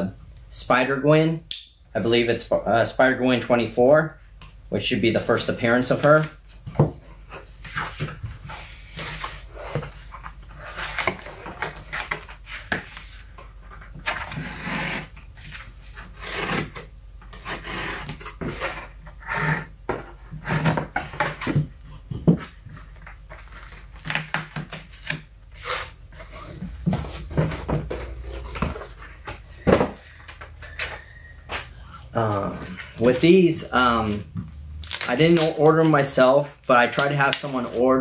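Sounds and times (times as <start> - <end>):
cardboard scraping and rubbing: 5.6 - 30.8.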